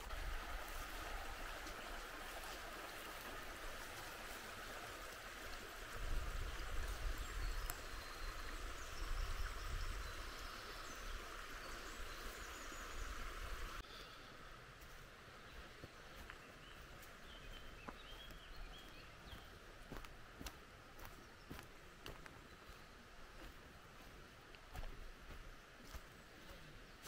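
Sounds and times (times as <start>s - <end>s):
brook babbling over stones: 0.0s - 27.0s.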